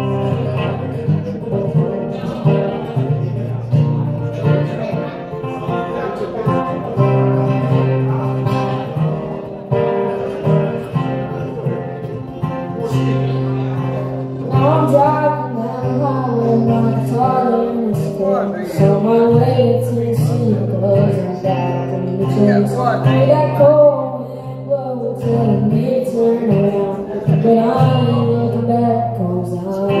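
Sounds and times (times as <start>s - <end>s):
acoustic guitar strumming: 0.0s - 30.0s
man singing: 14.4s - 30.0s.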